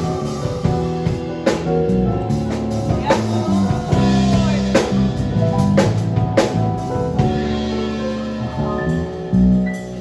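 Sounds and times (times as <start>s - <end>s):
bass guitar notes: 0.0s - 10.0s
electric keyboard chords: 0.0s - 10.0s
light drums: 0.0s - 10.0s.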